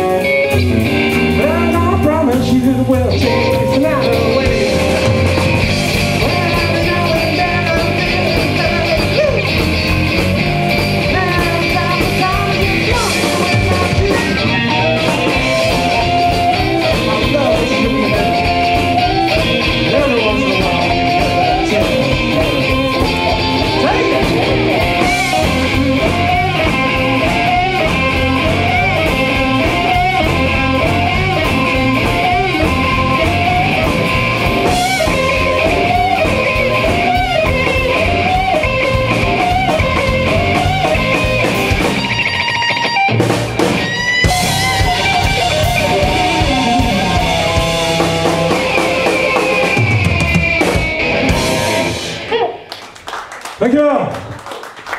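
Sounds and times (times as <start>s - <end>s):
bending melodic notes: 0.0s - 43.2s, 43.8s - 52.3s
bass guitar: 0.0s - 53.1s
electric guitar: 0.0s - 53.2s
drums: 0.0s - 54.9s.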